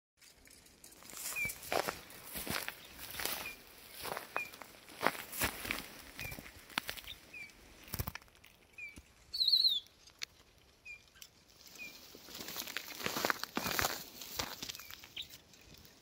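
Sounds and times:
rustling in dry grass and snow: 0:00.2 - 0:16.0
faint high chirp: 0:01.1 - 0:01.7, 0:02.8 - 0:04.6, 0:06.2 - 0:07.5, 0:08.7 - 0:10.0, 0:10.8 - 0:12.1
songbird wavering high call: 0:08.8 - 0:09.9.

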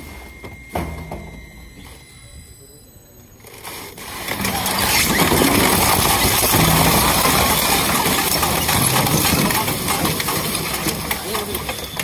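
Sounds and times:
shredder grinding metal and plastic: 0:03.6 - 0:12.0.

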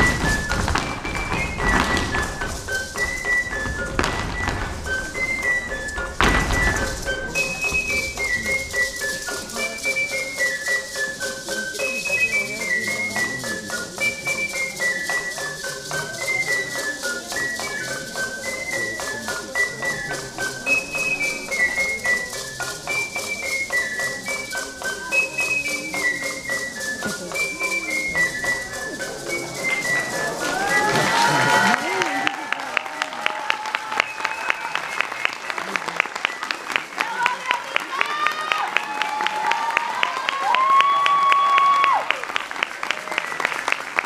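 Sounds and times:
small drum beat: 0:00.0 - 0:09.8
high cane flute: 0:00.0 - 0:44.0.

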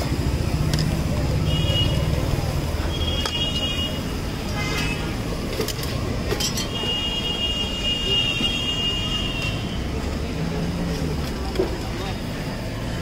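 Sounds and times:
faint background voices: 0:00.0 - 0:08.8
rumble of passing vehicles: 0:00.0 - 0:13.0.

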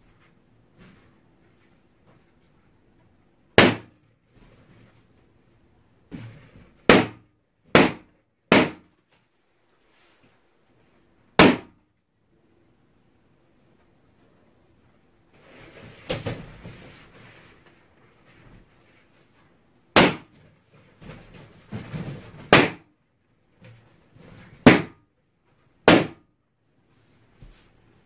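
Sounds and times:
balloons bursting: 0:03.6 - 0:04.0, 0:06.8 - 0:08.9, 0:11.4 - 0:11.8, 0:19.9 - 0:20.3, 0:22.4 - 0:22.8, 0:24.6 - 0:25.0, 0:25.8 - 0:26.2
rustle of balloons being handled: 0:08.9 - 0:11.1, 0:14.1 - 0:22.7, 0:26.6 - 0:28.0.

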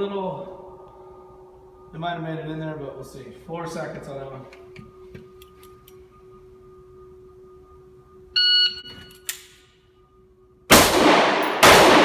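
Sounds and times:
faint steady hum: 0:00.0 - 0:12.0
shot timer beep: 0:08.3 - 0:09.3.

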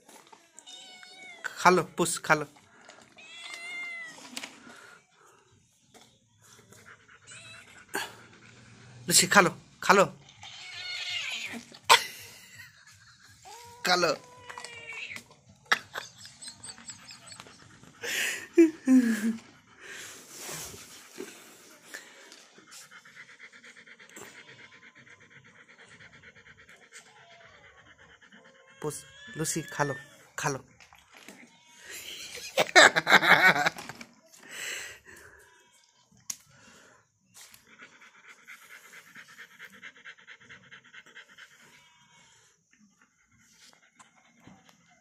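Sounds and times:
dog panting: 0:04.4 - 0:10.2, 0:11.6 - 0:31.0, 0:36.1 - 0:45.0.

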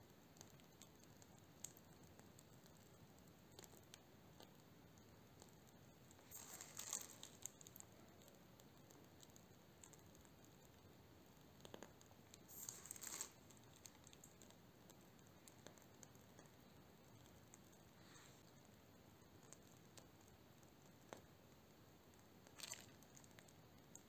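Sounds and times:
plastic piping bag crinkling: 0:00.4 - 0:10.8, 0:11.5 - 0:18.6, 0:22.4 - 0:24.0.

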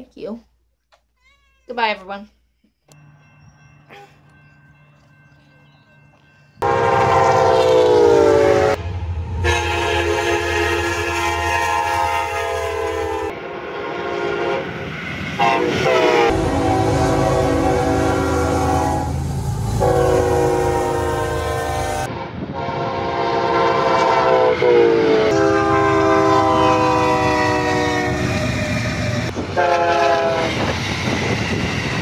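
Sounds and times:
low rumble of passing trains: 0:02.9 - 0:32.0
locomotive air horn blasts: 0:06.6 - 0:14.8, 0:15.4 - 0:30.7.

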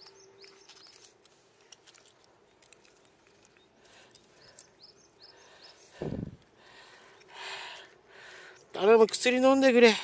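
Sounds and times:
small bird chirping: 0:00.0 - 0:01.2, 0:03.3 - 0:06.0
cat crunching dry kibble: 0:00.6 - 0:04.6.

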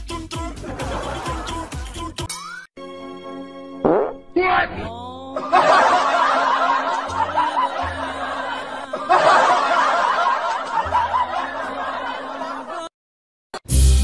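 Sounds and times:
background music: 0:00.0 - 0:12.8
people laughing: 0:00.6 - 0:01.9, 0:05.4 - 0:12.9.

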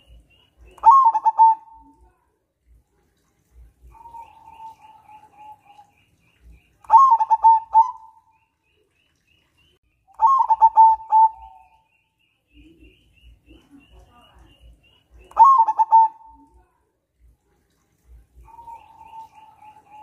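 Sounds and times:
dove cooing: 0:00.7 - 0:02.0, 0:06.9 - 0:08.2, 0:10.2 - 0:11.8, 0:15.3 - 0:16.6, 0:18.4 - 0:20.0.

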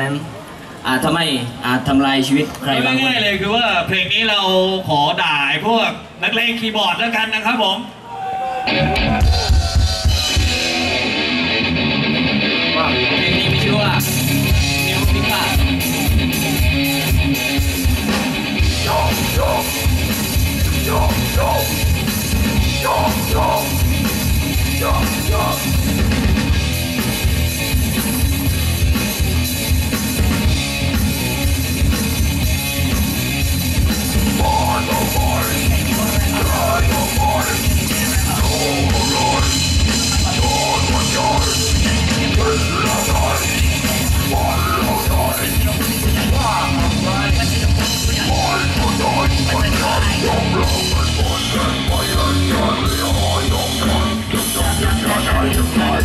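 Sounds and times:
bass guitar: 0:08.6 - 0:56.0
distorted electric guitar: 0:08.6 - 0:56.0
fast drum kit: 0:08.8 - 0:11.8, 0:13.2 - 0:56.0
person singing: 0:18.8 - 0:19.9, 0:20.7 - 0:21.8, 0:22.7 - 0:23.8, 0:34.4 - 0:56.0.

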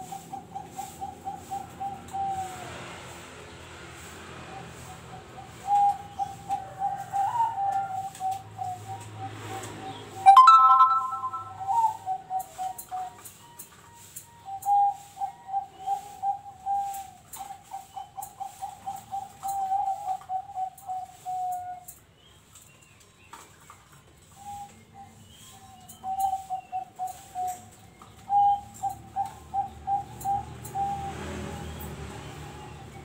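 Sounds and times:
doves cooing: 0:00.0 - 0:03.0, 0:04.4 - 0:13.3, 0:14.5 - 0:22.0, 0:24.3 - 0:33.0.

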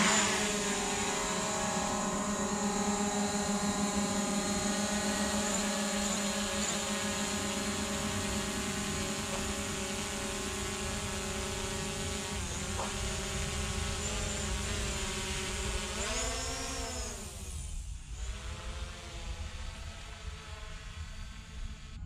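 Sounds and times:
drone propellers whining: 0:00.0 - 0:22.0.

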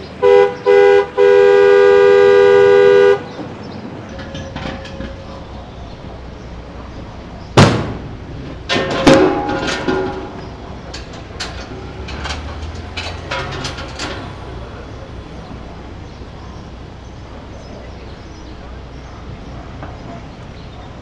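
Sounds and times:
gas cylinders clanking: 0:02.7 - 0:21.0
loud metallic bang: 0:07.5 - 0:14.5.

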